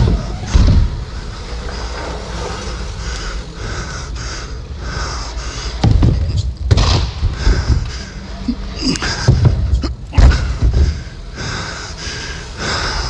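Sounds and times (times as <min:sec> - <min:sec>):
bike tyre rumble: 0:00.0 - 0:13.0
person breathing heavily: 0:00.0 - 0:13.0
loud knocks: 0:05.8 - 0:08.1, 0:09.0 - 0:11.1.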